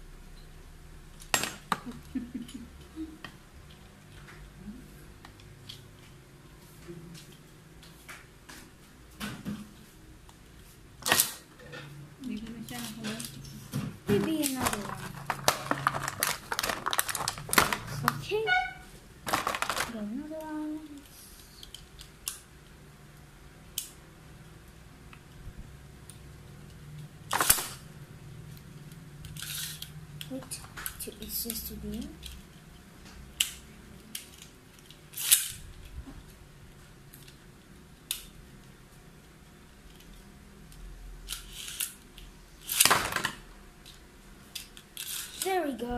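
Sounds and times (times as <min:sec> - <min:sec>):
faint steady hum: 0:00.0 - 0:45.9.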